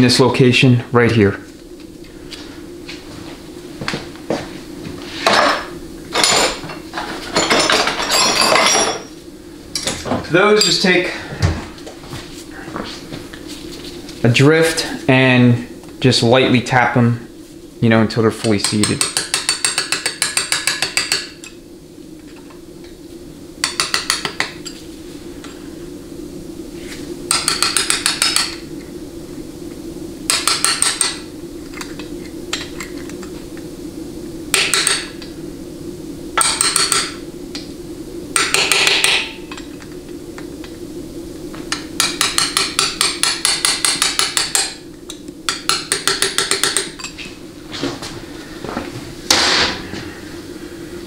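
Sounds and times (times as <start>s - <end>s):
hammer tapping metal punch: 42.0s - 44.7s, 45.5s - 47.0s.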